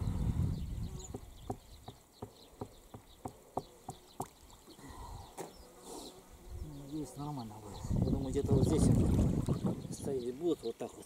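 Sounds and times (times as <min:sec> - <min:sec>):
small water splashes: 0:03.9 - 0:04.8, 0:08.6 - 0:09.8.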